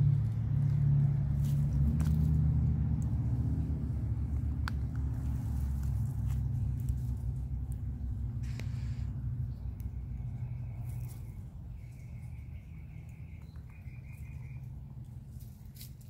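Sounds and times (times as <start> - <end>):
low engine-like rumble: 0.0 - 16.0
hens' beaks ticking in water bowl: 9.7 - 15.2.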